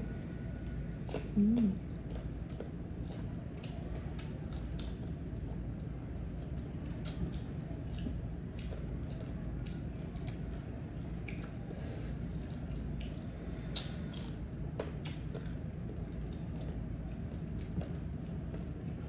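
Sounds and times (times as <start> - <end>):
steady low hum: 0.0 - 19.0
biting and chewing crunches: 2.1 - 10.6, 13.8 - 19.0.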